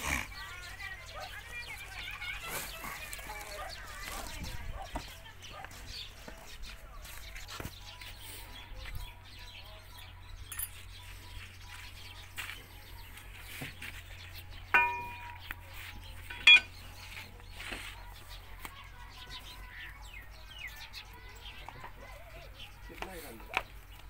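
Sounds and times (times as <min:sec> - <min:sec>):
metal tools clanking on iron: 0:10.5 - 0:10.9, 0:14.7 - 0:15.6, 0:16.2 - 0:16.9.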